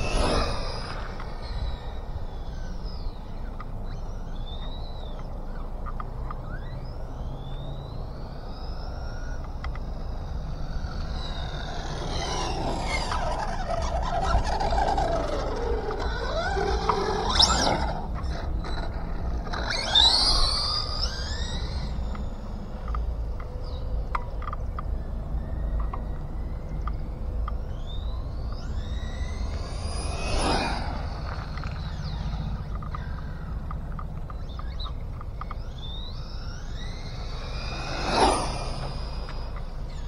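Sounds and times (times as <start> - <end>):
rc car electric motor whining: 0.0 - 5.1, 6.4 - 26.4, 27.0 - 40.0
wind rumble on microphone: 8.2 - 40.0.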